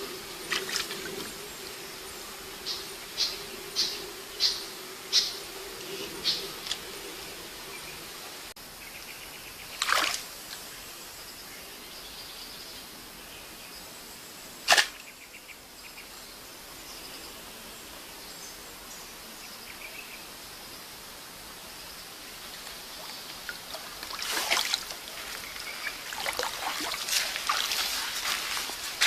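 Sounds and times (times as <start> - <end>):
stream washing: 0.0 - 8.6, 9.7 - 10.6, 22.3 - 29.0
stick jabbing into rocky streambed: 14.7 - 15.0.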